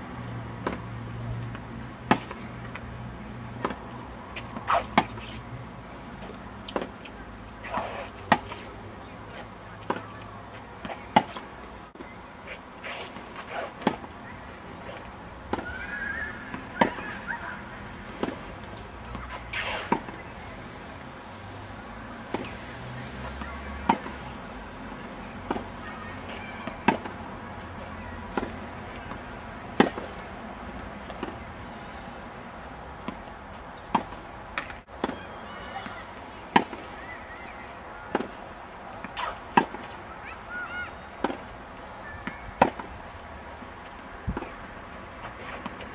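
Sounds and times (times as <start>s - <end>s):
tennis balls struck by rackets: 0.6s - 2.9s, 3.5s - 5.4s, 6.1s - 20.3s, 22.2s - 22.6s, 23.3s - 24.4s, 25.0s - 31.4s, 33.0s - 40.4s, 41.2s - 43.0s, 44.1s - 45.9s.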